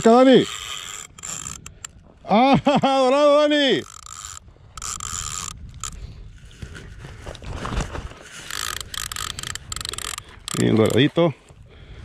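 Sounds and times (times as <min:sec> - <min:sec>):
fishing reel rasping: 0:00.0 - 0:02.1, 0:03.0 - 0:06.3, 0:08.2 - 0:11.2
low rumble of wind and water: 0:00.0 - 0:12.0.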